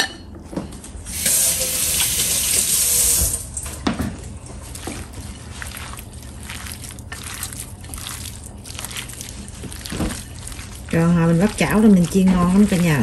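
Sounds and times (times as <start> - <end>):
kitchen tap running: 1.1 - 4.3, 6.0 - 13.0
hands squishing wet meat: 4.4 - 13.0.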